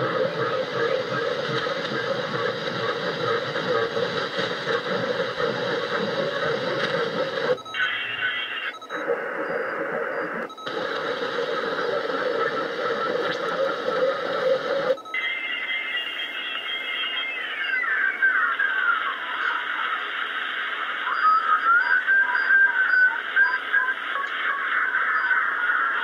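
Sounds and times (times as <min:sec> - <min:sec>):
radio static hissing: 0:00.0 - 0:26.0
faint steady whistles: 0:16.4 - 0:26.0.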